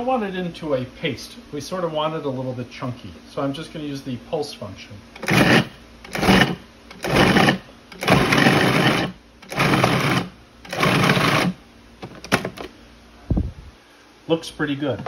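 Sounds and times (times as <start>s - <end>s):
food processor pulsing: 5.2s - 11.6s.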